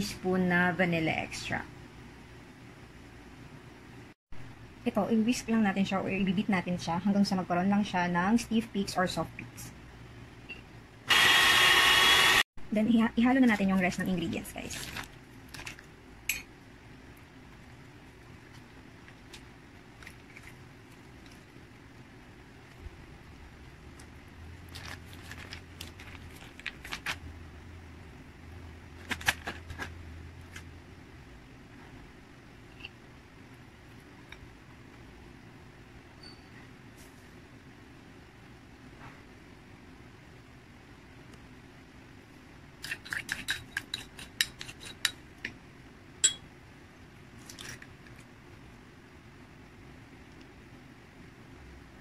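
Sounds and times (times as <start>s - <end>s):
foil wrapper crinkling: 14.5s - 15.9s, 24.0s - 27.3s, 29.0s - 30.6s
metal spoon scraping glass bowl: 42.8s - 45.2s
metal spoon clinking on glass bowl: 46.2s - 46.5s.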